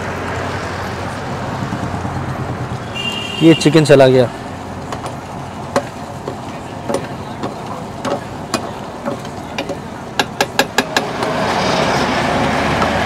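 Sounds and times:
metal ladle knocking on pan: 4.9 - 11.1.

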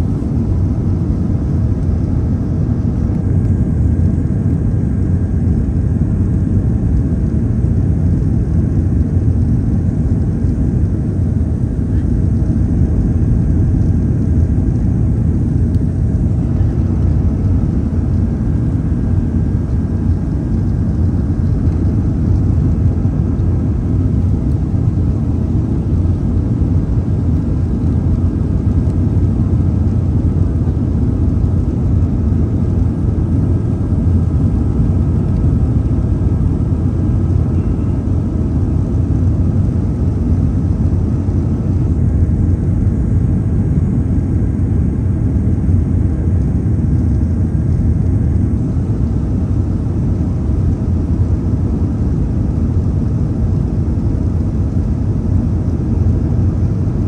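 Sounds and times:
airliner cabin engine rumble: 0.0 - 57.0.

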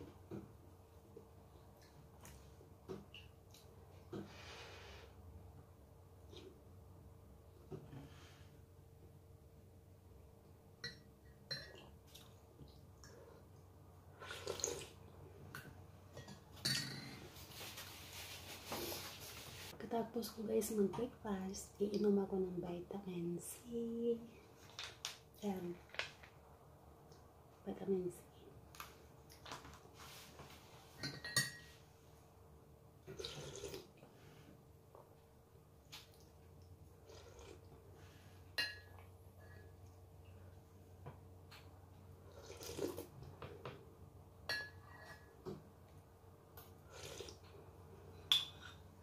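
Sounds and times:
slurp from spoon: 33.1 - 33.9, 42.3 - 43.1, 46.9 - 47.4.

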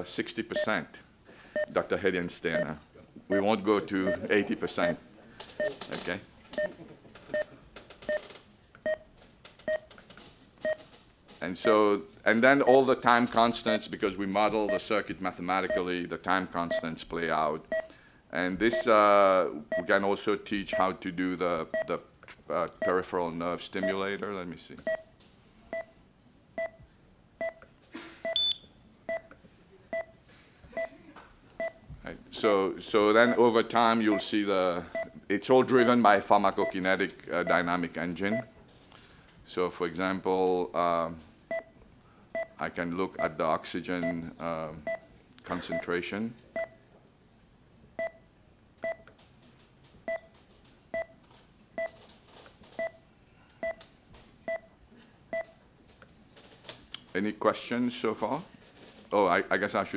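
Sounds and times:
patient monitor beeping: 0.5 - 0.8, 1.6 - 1.8, 3.3 - 10.0, 10.6 - 10.9, 14.6 - 14.9, 15.7 - 15.9, 16.7 - 16.9, 17.7 - 17.9, 18.7 - 18.9, 21.7 - 22.0, 24.8 - 25.1, 25.7 - 26.0, 26.6 - 26.8, 27.4 - 27.6, 28.2 - 30.2, 31.6 - 31.8, 33.2 - 37.7, 38.3 - 38.6, 44.8 - 45.0, 48.8 - 49.1, 50.1 - 50.3, 51.8 - 52.0
patient monitor pulse beeps: 1.6 - 1.8, 3.3 - 5.0, 5.6 - 5.8, 6.6 - 7.5, 8.1 - 9.1, 9.7 - 9.9, 10.6 - 10.8, 17.7 - 17.9, 21.7 - 21.9, 24.9 - 25.1, 25.7 - 26.0, 26.6 - 26.8, 27.4 - 27.6, 28.2 - 29.3, 29.9 - 30.2, 31.6 - 31.8, 34.1 - 34.3, 34.9 - 35.2, 38.3 - 38.5, 41.5 - 41.8, 42.4 - 42.6, 44.8 - 45.0, 48.0 - 48.2, 48.8 - 49.1, 50.1 - 50.3, 50.9 - 51.2, 51.8 - 52.0, 53.6 - 53.8, 54.5 - 54.7, 55.3 - 55.6.

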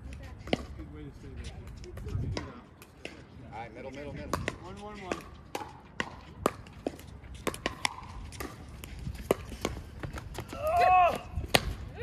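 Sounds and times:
ball bouncing on hard court: 4.2 - 11.8.

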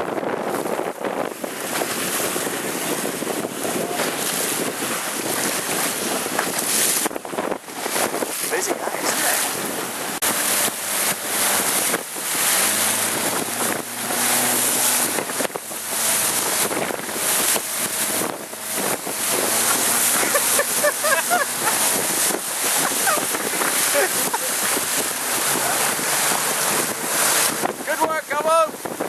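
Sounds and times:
rough sea water splashing: 0.0 - 29.0
wind buffeting microphone: 0.0 - 29.0.

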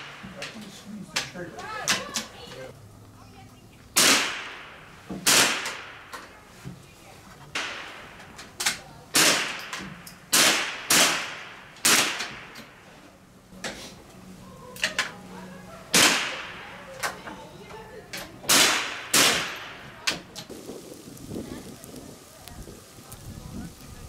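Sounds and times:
rifle shots: 4.0 - 6.2, 7.5 - 8.4, 9.1 - 12.8, 15.9 - 16.7, 18.5 - 20.0.

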